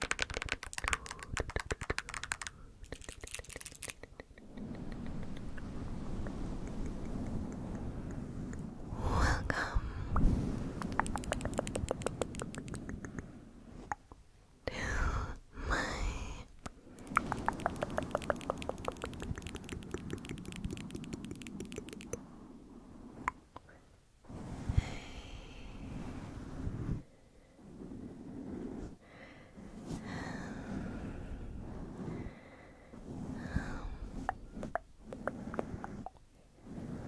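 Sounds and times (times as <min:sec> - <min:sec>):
scratching on microphone: 0:00.0 - 0:07.8, 0:10.6 - 0:13.0, 0:17.0 - 0:22.2
soft swishes: 0:03.1 - 0:09.5.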